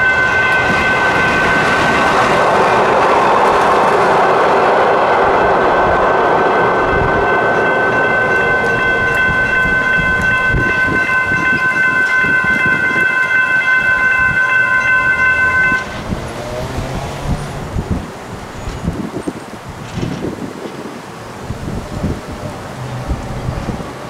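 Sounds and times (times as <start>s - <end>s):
electronic crossing bells ringing: 0.0s - 3.0s, 6.5s - 16.7s
light rail train rumble: 0.0s - 24.0s.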